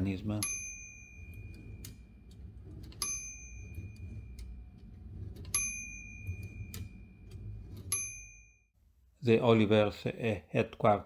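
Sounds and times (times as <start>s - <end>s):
typewriter bell ringing: 0.4s - 8.5s.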